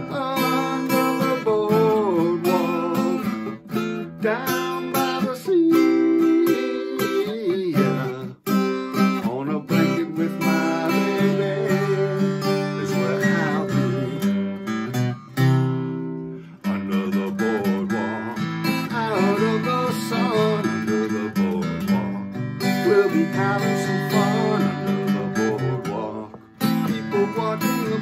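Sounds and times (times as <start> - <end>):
man singing: 0.0 - 15.0, 16.4 - 28.0
acoustic guitar strummed: 0.0 - 28.0.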